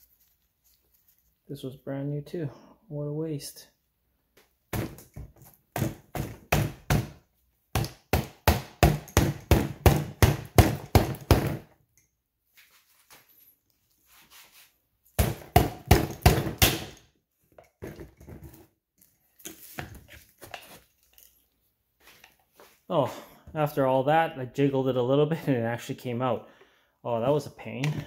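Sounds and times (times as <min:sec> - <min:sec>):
rubber mallet striking pliers: 0:04.8 - 0:11.7, 0:15.2 - 0:17.1.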